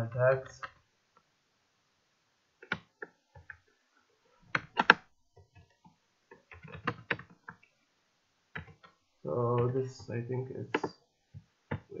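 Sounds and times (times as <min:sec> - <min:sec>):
keyboard typing: 0:02.6 - 0:03.6, 0:04.5 - 0:07.7, 0:08.5 - 0:09.0.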